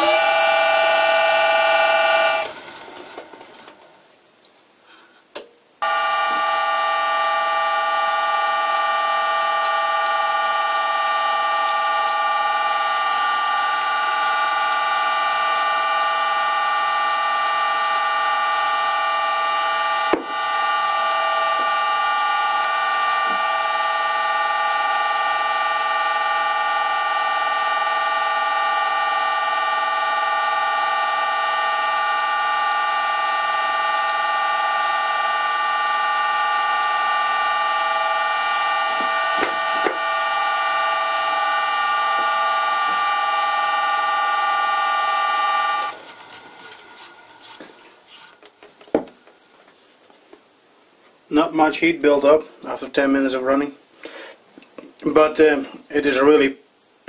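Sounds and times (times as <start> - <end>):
lathe spindle whining: 0.0 - 3.8, 5.8 - 49.7.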